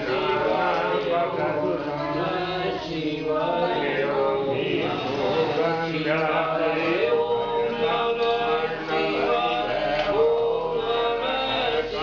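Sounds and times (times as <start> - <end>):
voices chanting together: 0.0 - 12.0.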